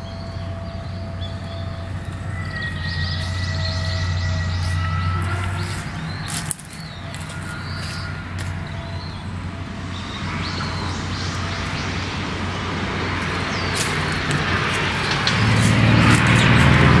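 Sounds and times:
bird chirps: 0.0s - 16.9s
car approaching: 0.0s - 17.0s.

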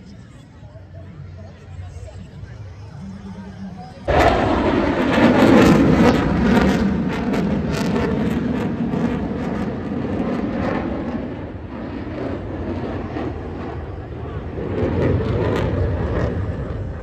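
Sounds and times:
fighter jet flying past: 4.0s - 17.0s.

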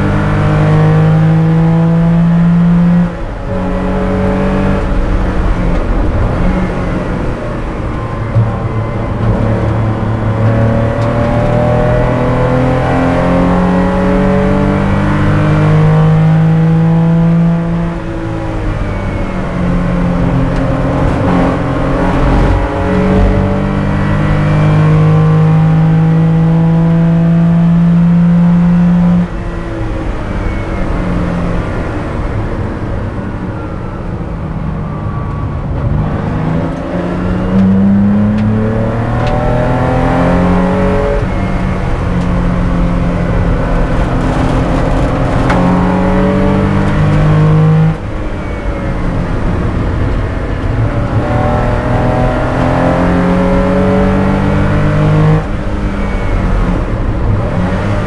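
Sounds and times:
race car engine revving: 0.0s - 32.5s, 35.8s - 58.0s.

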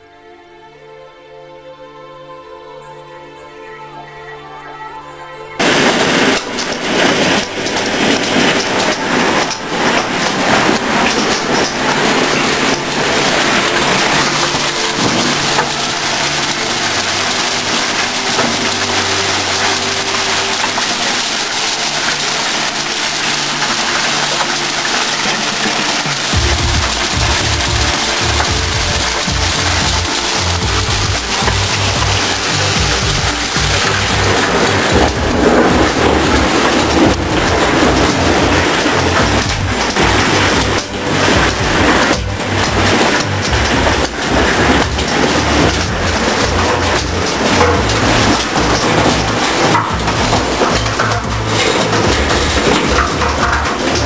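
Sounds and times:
hail clattering on hard surfaces: 5.6s - 54.0s.

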